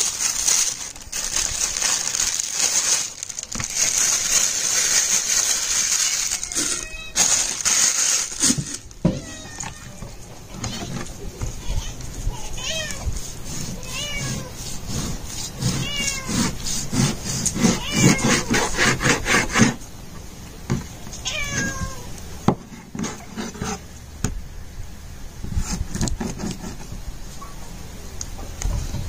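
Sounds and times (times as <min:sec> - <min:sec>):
cat meowing: 0:06.0 - 0:07.2, 0:09.0 - 0:11.0, 0:11.6 - 0:13.1, 0:13.8 - 0:14.6, 0:15.7 - 0:16.4, 0:17.7 - 0:18.5, 0:21.2 - 0:22.1
knife sawing through raw meat: 0:13.2 - 0:19.8.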